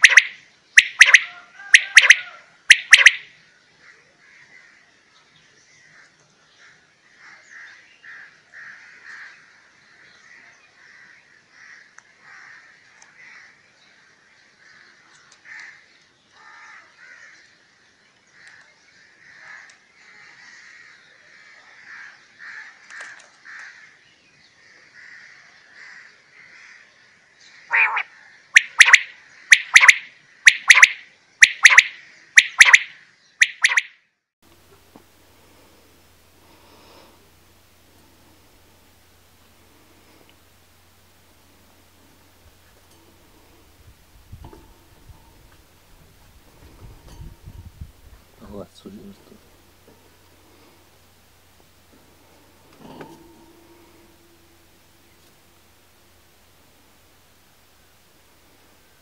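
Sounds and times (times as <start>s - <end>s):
quail calling loudly: 0.0s - 3.3s, 27.7s - 33.9s
faint quail calls: 0.0s - 4.8s, 27.7s - 31.0s.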